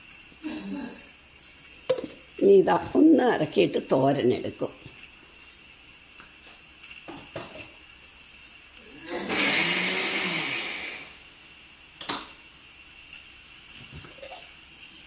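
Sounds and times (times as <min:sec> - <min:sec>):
mixer grinder motor: 0:08.8 - 0:11.2.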